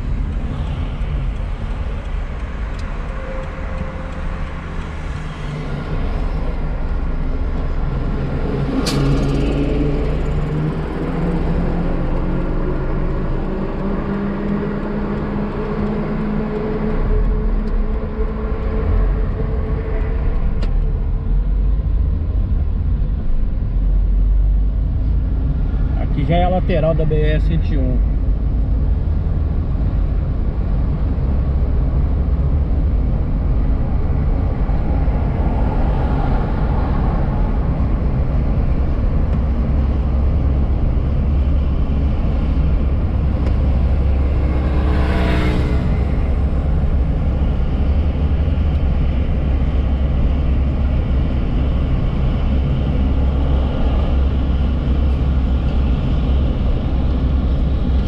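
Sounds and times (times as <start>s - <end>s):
car engine rumble inside cabin: 0.0s - 58.0s
tyres on road: 0.0s - 58.0s.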